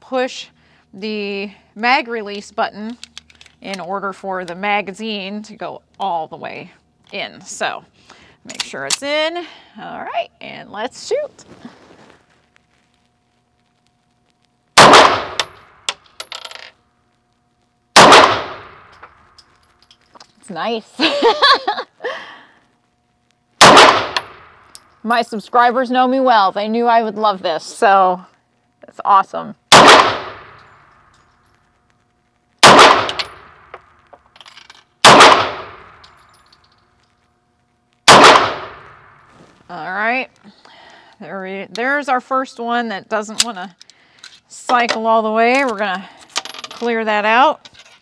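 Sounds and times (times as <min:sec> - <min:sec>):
pistol shots with echo: 0:14.8 - 0:15.6, 0:18.0 - 0:18.8, 0:23.6 - 0:24.5, 0:29.7 - 0:30.6, 0:32.6 - 0:33.5, 0:35.0 - 0:36.0, 0:38.1 - 0:39.1
faint metallic clinks: 0:19.0 - 0:20.5, 0:36.0 - 0:37.4.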